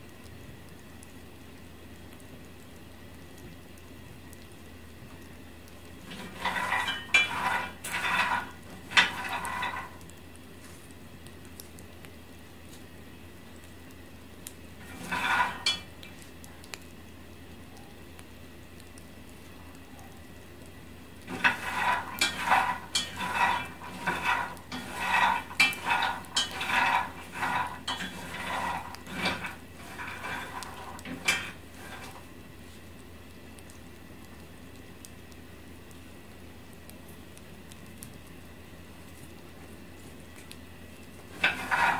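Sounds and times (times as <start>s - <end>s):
peanuts rattling in a pan: 6.0s - 10.1s, 14.8s - 16.0s, 21.2s - 32.3s, 41.2s - 41.9s.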